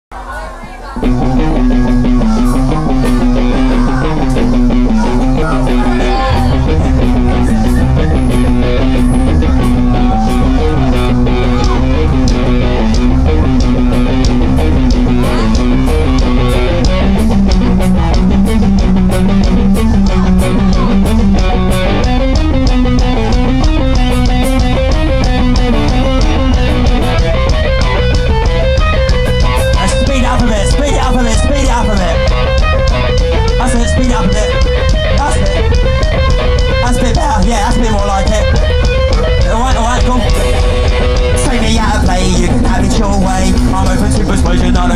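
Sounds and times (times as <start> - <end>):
punk rock band playing live: 1.0 - 44.9.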